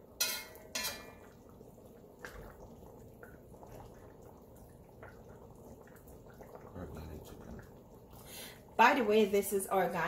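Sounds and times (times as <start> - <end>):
curry simmering and bubbling: 0.0 - 10.0
metal spoon knocking on pot: 0.2 - 1.2.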